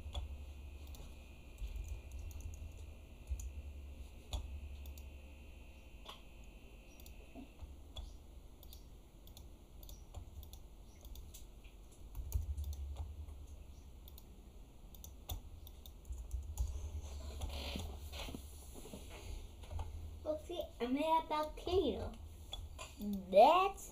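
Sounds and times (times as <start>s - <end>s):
keyboard typing: 0.0s - 3.6s, 4.3s - 5.1s, 6.0s - 14.3s, 14.9s - 18.0s
low steady hum: 0.0s - 23.9s
mouse buttons clicking: 6.9s - 7.2s, 7.9s - 11.5s.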